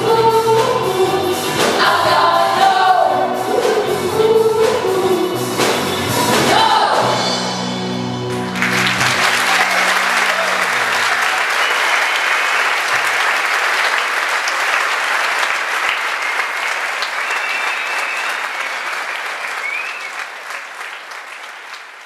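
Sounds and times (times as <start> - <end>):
audience applauding: 8.3 - 22.0.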